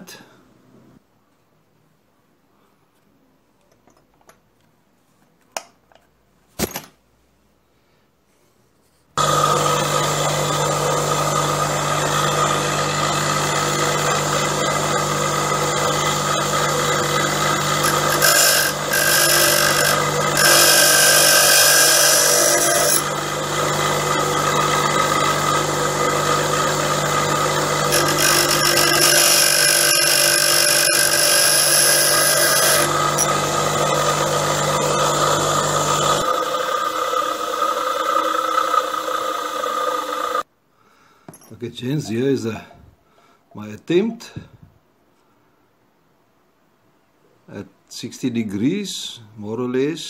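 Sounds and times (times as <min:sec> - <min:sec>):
bench grinder motor hum: 0:09.2 - 0:40.4
steel hissing against grinding wheel: 0:17.8 - 0:23.1, 0:27.9 - 0:33.3.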